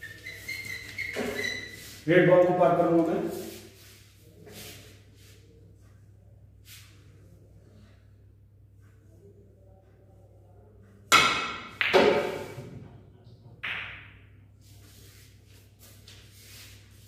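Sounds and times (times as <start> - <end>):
cue and snooker balls clacking: 11.1 - 12.6, 13.6 - 14.4
snooker ball knock: 11.1 - 12.6, 13.6 - 14.2.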